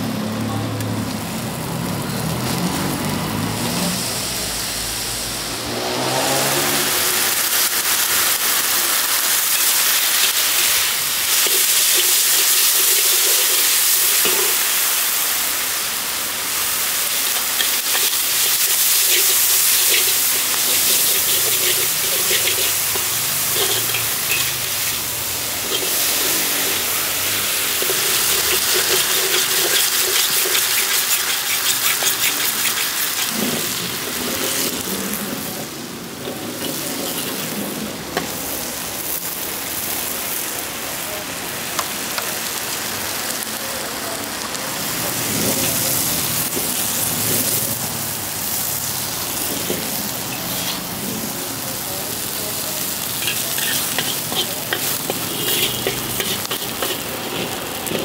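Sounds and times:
noodles sizzling in pan: 0.0s - 58.0s.

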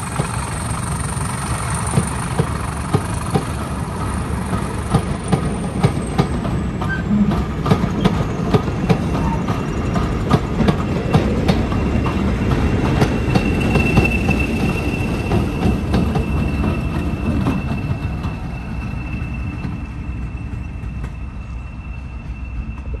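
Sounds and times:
train wheels clicking over rail joints: 0.0s - 23.0s
wheel squeal: 0.1s - 23.0s.

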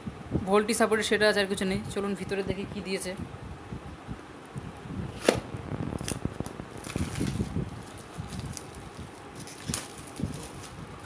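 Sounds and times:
plastic wrap crinkling: 6.0s - 11.0s.

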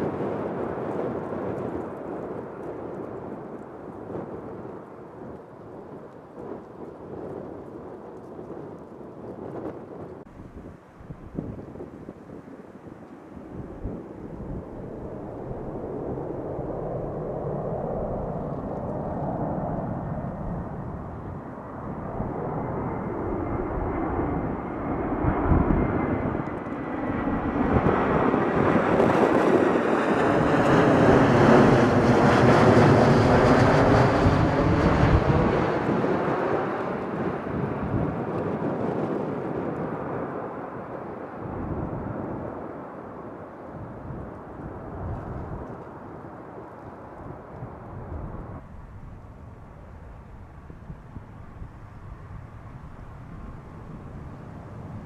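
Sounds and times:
jet airliner flying overhead: 0.0s - 55.0s
thin jet engine whine: 6.1s - 55.0s.

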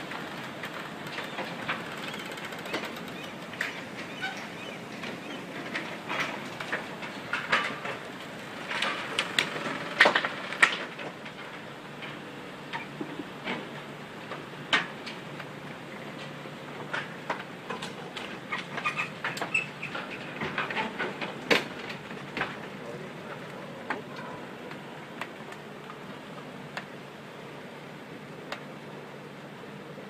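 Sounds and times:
boat hulls cracking and creaking: 0.0s - 13.8s.

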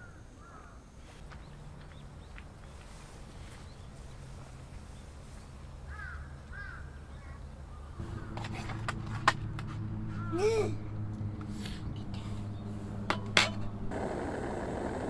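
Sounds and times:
crows cawing: 0.0s - 0.8s, 5.9s - 7.4s, 8.0s - 8.5s, 10.1s - 10.5s.

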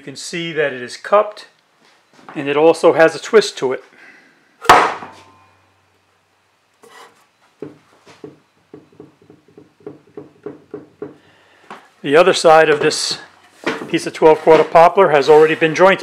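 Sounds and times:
board knocking on metal table: 7.6s - 11.2s.

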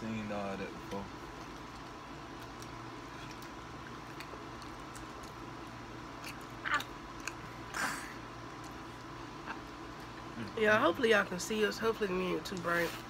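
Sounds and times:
steady hum: 0.0s - 13.0s
people chewing: 0.5s - 10.9s.

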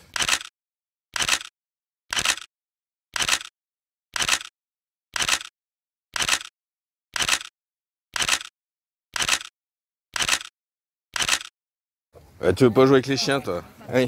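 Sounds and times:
camera shutter click and whir: 0.0s - 0.5s, 1.2s - 1.5s, 2.1s - 2.5s, 3.2s - 3.5s, 4.2s - 4.5s, 5.2s - 5.5s, 6.2s - 6.5s, 7.2s - 7.5s, 8.2s - 8.5s, 9.2s - 9.5s, 10.2s - 10.5s, 11.1s - 11.5s.

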